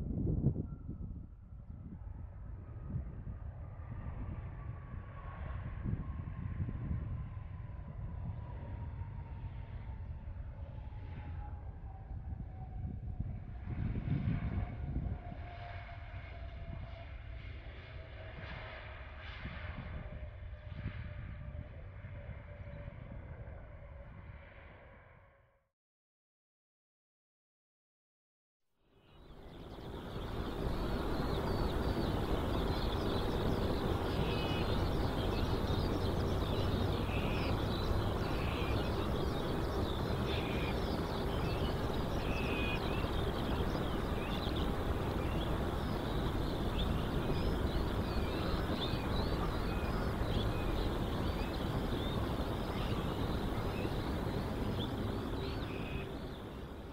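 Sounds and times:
small birds chirping: 29.1 - 56.9
steady background rumble: 29.2 - 56.9.

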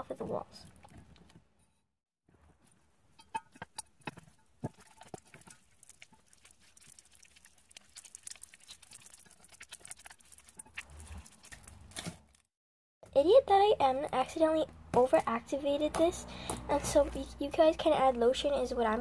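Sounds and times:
slime squelching and clicking: 4.8 - 12.4.

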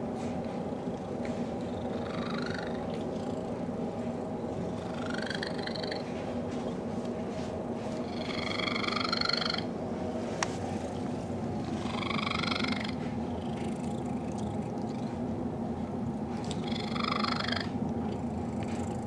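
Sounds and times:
cat purring: 0.7 - 6.1, 8.0 - 9.7, 11.6 - 15.2, 16.4 - 19.0.

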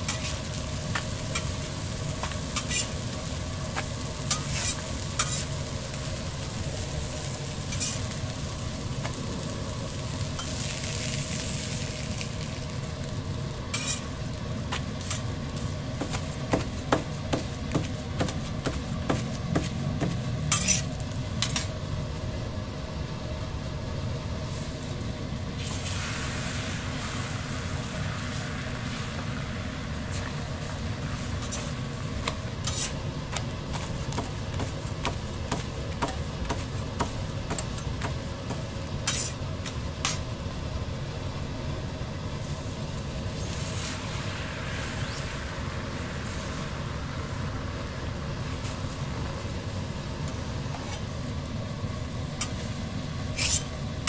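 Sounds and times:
metal spatula scraping a griddle: 0.0 - 1.6, 2.2 - 3.1, 3.8 - 5.6, 7.6 - 8.2, 13.7 - 14.1, 20.2 - 21.7, 32.6 - 33.0, 39.0 - 39.4, 53.3 - 53.7
food sizzling on a griddle: 0.0 - 21.6, 25.6 - 41.0, 42.3 - 51.3, 52.3 - 53.6
steady low hum: 0.0 - 54.0.

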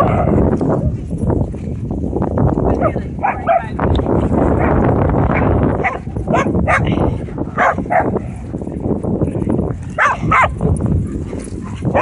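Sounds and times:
dogs barking: 0.0 - 0.9, 2.8 - 3.8, 4.6 - 8.3, 10.0 - 12.0.

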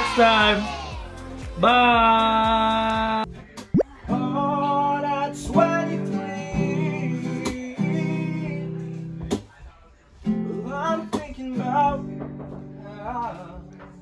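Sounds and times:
acoustic guitar strumming: 10.3 - 13.0.

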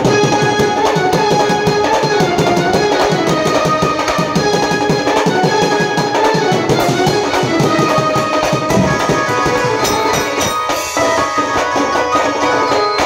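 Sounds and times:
quick steady drumbeat: 0.0 - 11.1
wavering melody line: 5.6 - 12.3.

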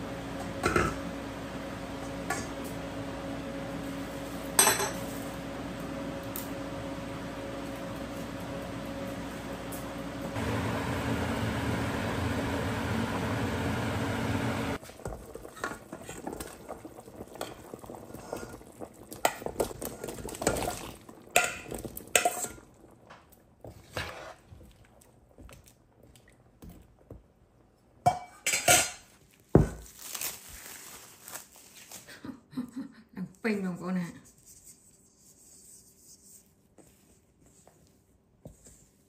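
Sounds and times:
dishes and pots clinking: 0.4 - 1.0, 4.5 - 5.2, 19.2 - 22.7, 28.0 - 29.8.

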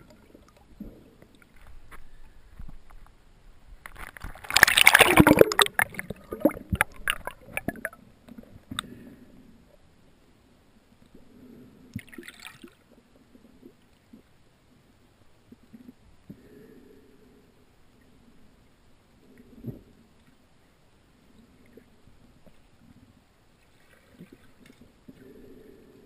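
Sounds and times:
water splashing: 3.9 - 8.0, 12.0 - 12.8
rush of bubbles: 4.4 - 8.0
faint underwater bubbling: 4.4 - 9.7.

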